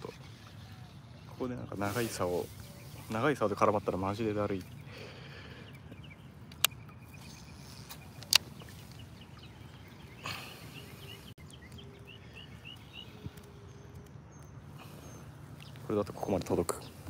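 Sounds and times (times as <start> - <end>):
bird chirping: 0.0 - 17.0
outdoor background noise: 0.0 - 17.0
sharp clicks: 6.4 - 7.0, 7.7 - 8.7.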